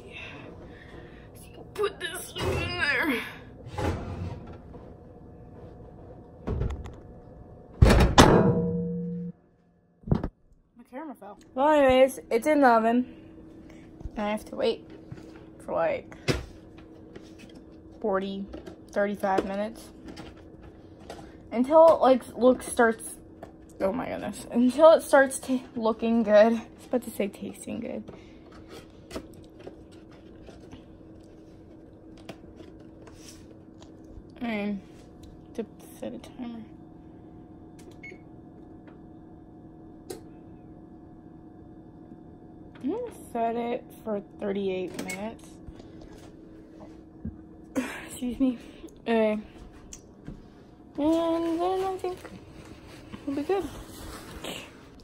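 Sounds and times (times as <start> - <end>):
faint steady hum: 0.0 - 55.0
oven door shutting with thunks: 3.6 - 4.7, 7.8 - 8.8
metallic ring: 8.3 - 9.4.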